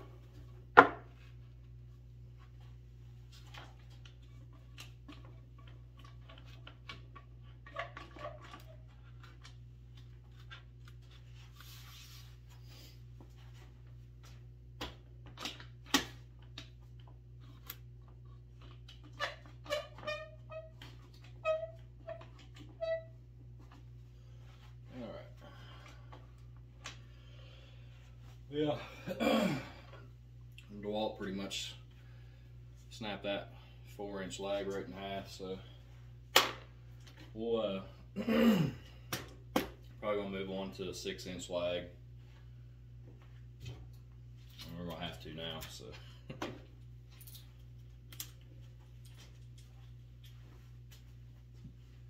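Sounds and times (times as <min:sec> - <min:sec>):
wooden boards knocking and clattering: 0:00.7 - 0:01.1.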